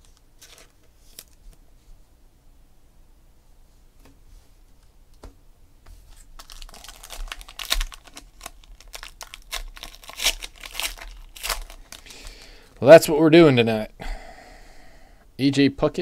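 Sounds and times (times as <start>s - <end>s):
wrapper tearing and crinkling: 6.1s - 12.5s.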